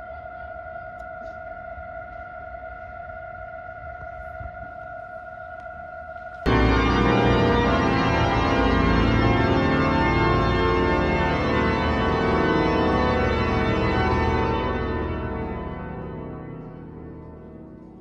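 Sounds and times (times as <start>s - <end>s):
pipe organ sustained chord: 6.4s - 18.0s
steady held note: 6.5s - 18.0s.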